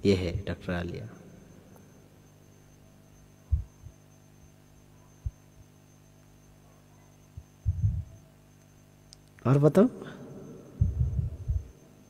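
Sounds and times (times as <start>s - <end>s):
steady low hum: 0.0s - 12.0s
short low thumps: 7.7s - 8.1s, 10.8s - 11.7s.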